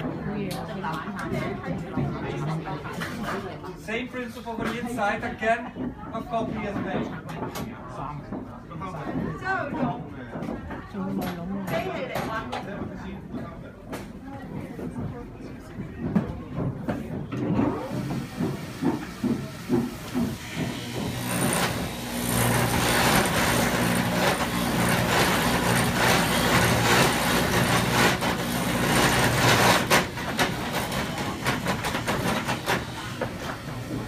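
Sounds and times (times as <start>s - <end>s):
cutter working into wood: 17.6s - 34.0s.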